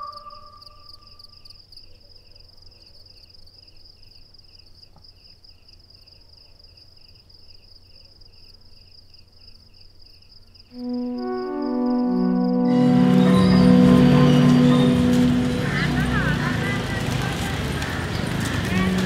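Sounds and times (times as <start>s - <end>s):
low chirp: 10.8s - 17.0s
low hum: 10.8s - 17.0s
held music tone: 10.8s - 17.4s.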